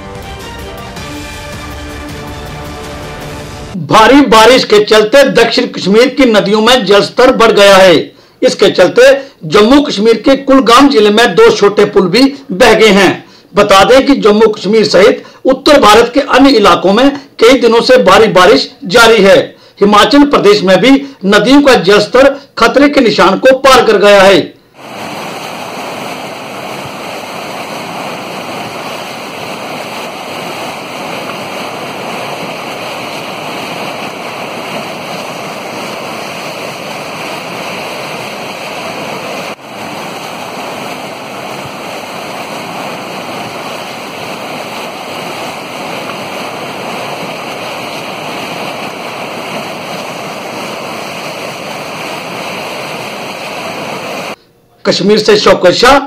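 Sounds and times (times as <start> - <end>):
flooded river rushing: 24.8 - 54.4.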